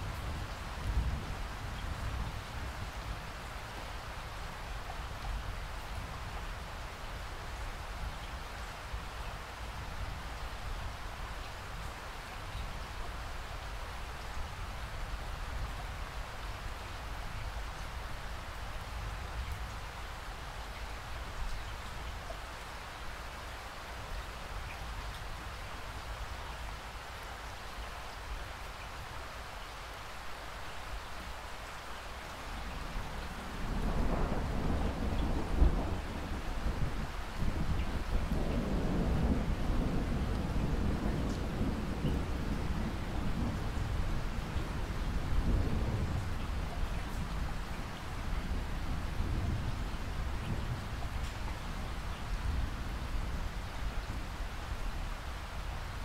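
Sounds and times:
steady rain falling: 0.0s - 56.0s
thunder rumbling: 32.9s - 47.6s.

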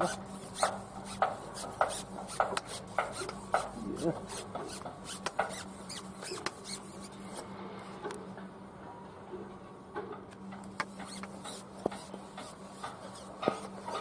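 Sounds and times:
sharp scraping strokes: 0.0s - 7.5s, 10.8s - 14.0s.

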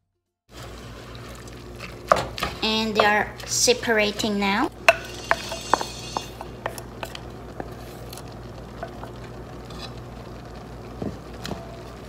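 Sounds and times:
meat sizzling: 0.5s - 3.5s, 4.7s - 12.0s
spoon knocking and scraping a pot: 4.8s - 7.8s, 8.8s - 9.9s.

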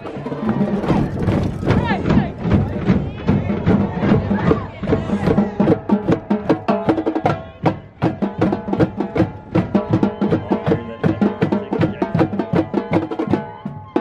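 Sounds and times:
marching tenor drums: 0.0s - 14.0s.

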